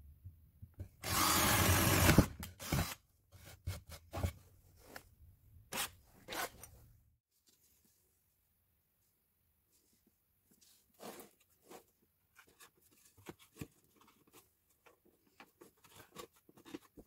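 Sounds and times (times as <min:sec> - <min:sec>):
power drill boring into wood: 0:01.0 - 0:03.0.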